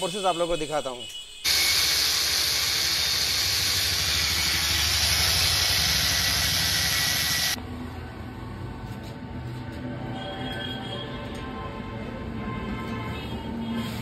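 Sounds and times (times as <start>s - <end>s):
angle grinder cutting metal: 1.5s - 7.6s.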